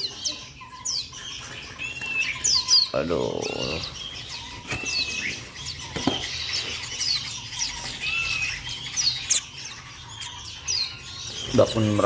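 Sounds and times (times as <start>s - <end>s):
young songbirds chirping: 0.0s - 12.0s.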